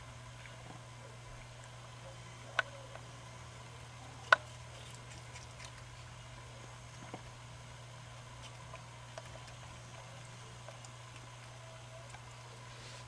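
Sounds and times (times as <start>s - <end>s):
steady low hum: 0.0s - 13.0s
lemur eating clicks: 3.9s - 7.3s, 8.2s - 12.7s.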